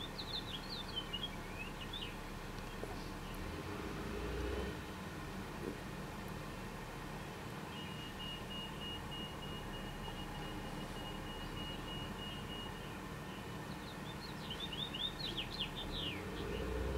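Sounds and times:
finch singing chirpy notes: 0.0s - 3.4s, 13.6s - 16.9s
faint steady high tone: 7.7s - 15.2s.

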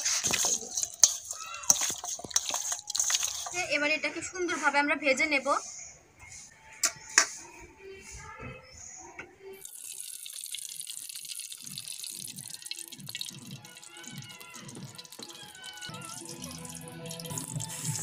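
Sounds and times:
oil pouring into iron pan: 0.0s - 3.6s, 9.6s - 18.0s.

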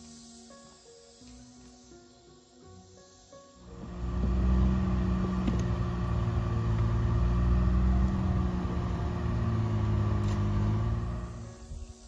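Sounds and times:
utility vehicle engine running: 3.8s - 11.5s.

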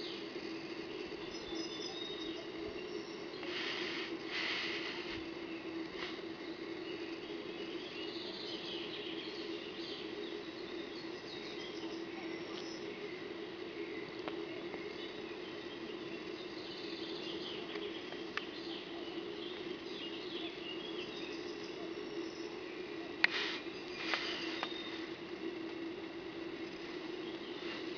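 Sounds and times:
steady low hum: 0.0s - 27.9s
faint clicks: 14.1s - 14.9s, 17.7s - 18.5s.

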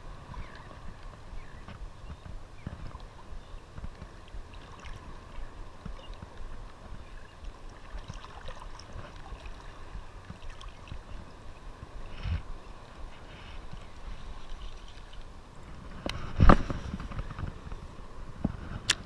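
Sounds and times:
surf water sloshing and lapping: 0.0s - 19.0s
small splashes: 3.9s - 11.3s.

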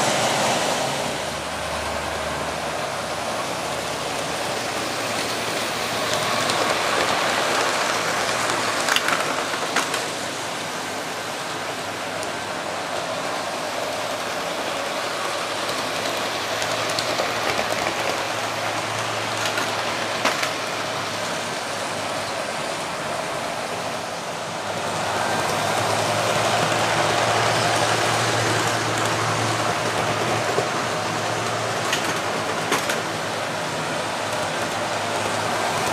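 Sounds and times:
model train motors whirring: 0.0s - 35.9s.

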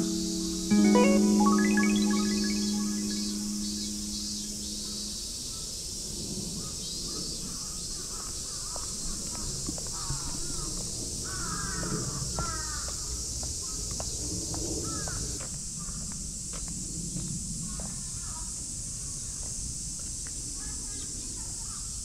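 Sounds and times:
steady high hiss: 0.0s - 5.5s.

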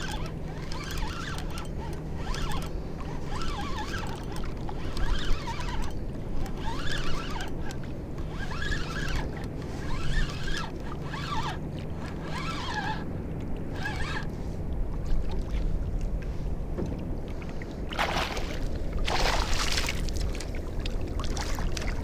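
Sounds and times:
fishing reel whirring: 0.0s - 14.4s
wind and water noise: 0.0s - 22.0s.

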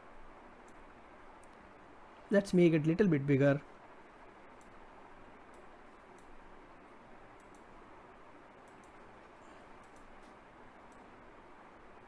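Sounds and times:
computer mouse clicks: 0.6s - 0.8s, 1.4s - 1.6s, 4.5s - 4.8s, 5.4s - 6.4s, 7.4s - 7.7s, 8.6s - 9.1s, 9.8s - 11.1s.

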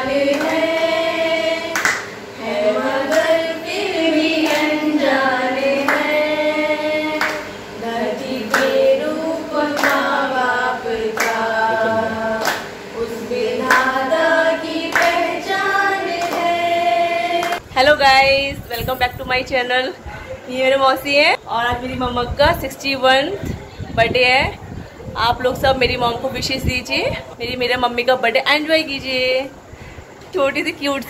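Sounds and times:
women singing without instruments: 0.0s - 18.0s
hand claps: 0.3s - 0.9s, 1.7s - 2.2s, 3.0s - 3.4s, 4.3s - 4.8s, 5.8s - 6.2s, 7.2s - 7.6s, 8.5s - 8.8s, 9.7s - 10.1s, 11.2s - 11.4s, 12.4s - 12.8s, 13.6s - 14.0s, 14.9s - 15.2s, 16.1s - 16.6s, 17.4s - 17.6s.

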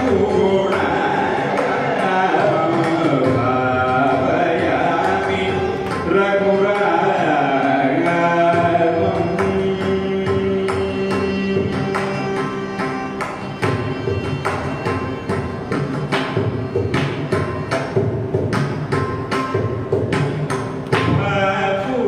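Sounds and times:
man singing: 0.0s - 12.4s, 21.1s - 22.0s
violin accompaniment: 0.0s - 22.0s.

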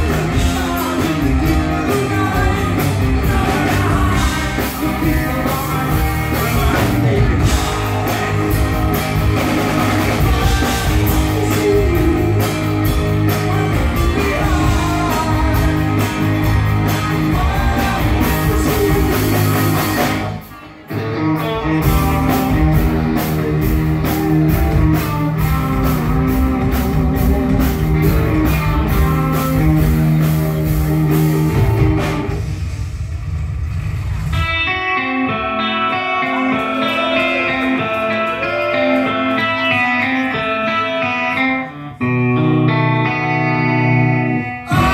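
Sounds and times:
person singing: 0.0s - 29.8s, 42.7s - 44.9s
rock band playing live: 0.0s - 44.9s.

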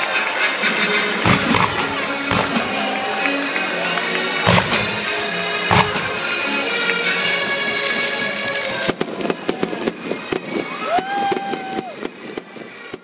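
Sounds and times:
music: 0.0s - 11.2s
rising firework whistle: 0.8s - 3.7s, 4.4s - 7.0s, 7.7s - 12.9s
fireworks crackling and popping: 1.1s - 13.0s.

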